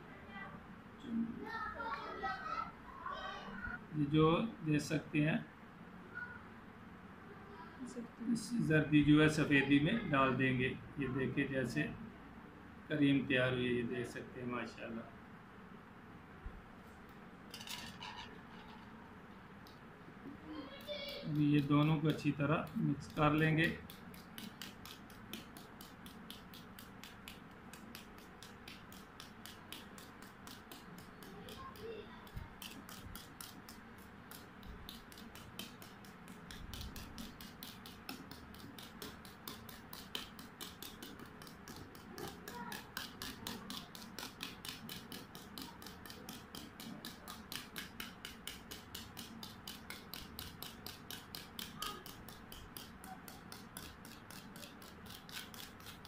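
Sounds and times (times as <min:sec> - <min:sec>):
wire whisk clicking in steel bowl: 0:21.0 - 0:56.0.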